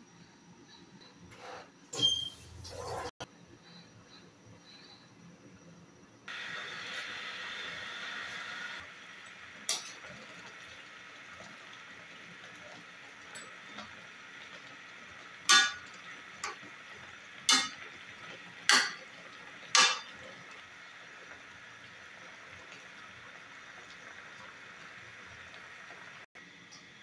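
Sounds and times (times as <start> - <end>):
metal spoon clanking in wok: 15.5 - 16.6, 17.5 - 17.8, 18.7 - 19.1, 19.7 - 20.2.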